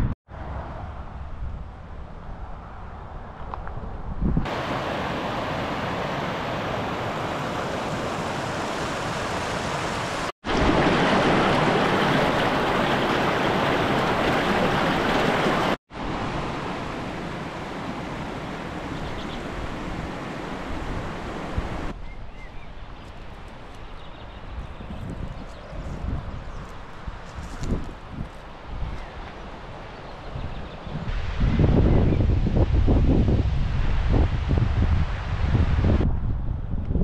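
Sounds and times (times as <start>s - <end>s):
rushing water roar: 4.4s - 22.0s.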